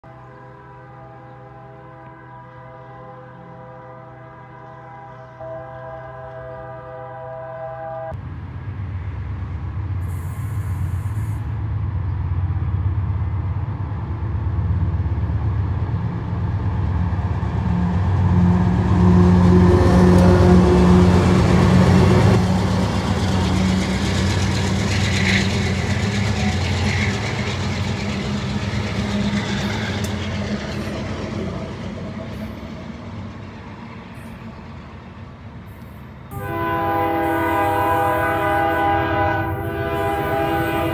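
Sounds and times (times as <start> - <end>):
locomotive air horn: 0.1 - 8.2, 36.3 - 40.9
locomotive diesel engines rumbling: 0.1 - 40.9.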